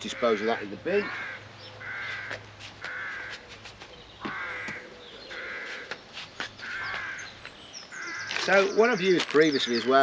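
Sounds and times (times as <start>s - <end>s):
crow cawing: 0.0s - 3.4s, 4.2s - 6.0s, 6.6s - 8.6s.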